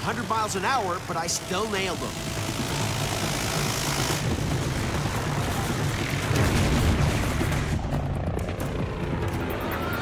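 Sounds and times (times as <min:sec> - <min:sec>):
explosions: 0:04.2 - 0:09.0.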